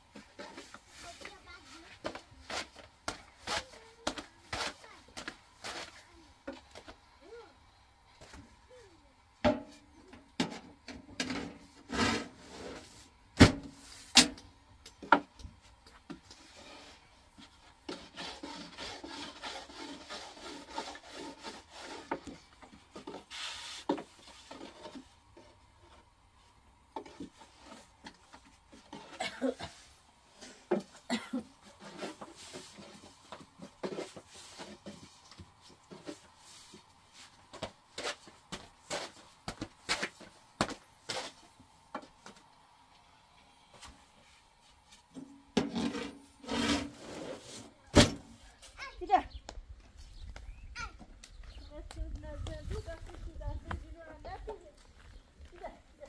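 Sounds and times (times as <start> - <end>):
rolling pin rubbing on dough: 16.5 - 25.0.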